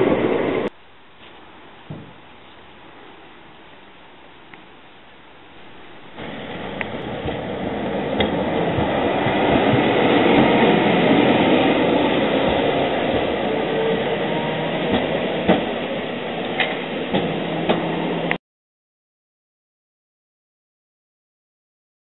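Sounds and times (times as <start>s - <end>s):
tram wheels rumbling on rail: 0.0s - 3.0s, 5.4s - 18.4s.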